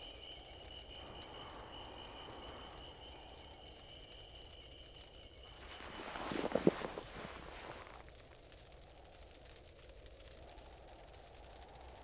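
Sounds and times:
low hiss: 0:00.0 - 0:12.0.

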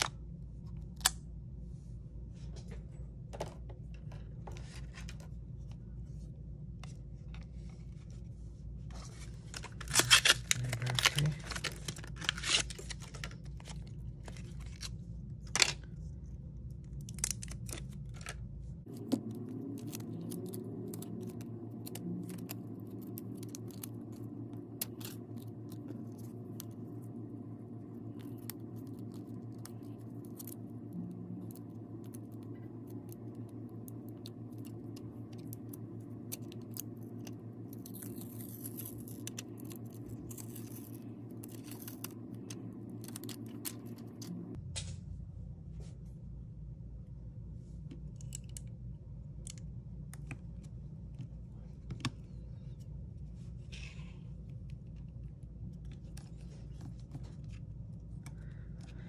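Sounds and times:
steady low hum: 0:00.0 - 0:59.0
plastic film rustle: 0:09.2 - 0:14.9
adhesive strips peeling and crinkling: 0:09.4 - 0:14.9, 0:17.0 - 0:44.4.

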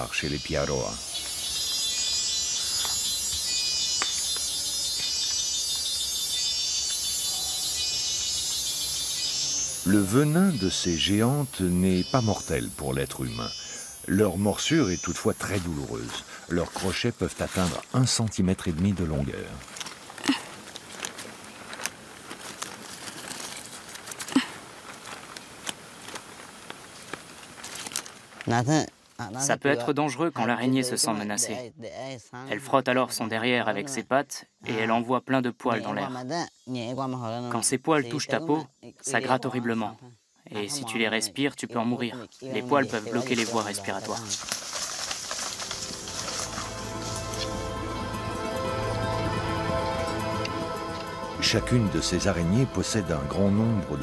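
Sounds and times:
insects trilling and buzzing: 0:00.0 - 0:31.6, 0:32.6 - 0:54.0
dry leaves rustling and crackling: 0:14.2 - 0:29.3, 0:42.6 - 0:54.0
twig snapping: 0:44.0 - 0:47.5.

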